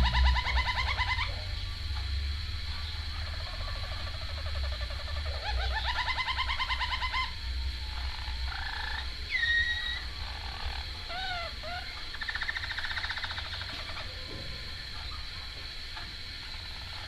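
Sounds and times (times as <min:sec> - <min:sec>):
canary singing trills and whistles: 0:00.0 - 0:01.6, 0:02.7 - 0:14.1.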